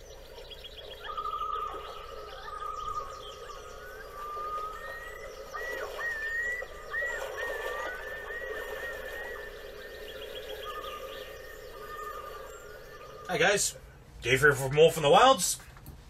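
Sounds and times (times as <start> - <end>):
long whistled bird calls: 0.0 - 14.0
background bird chatter: 0.0 - 15.8.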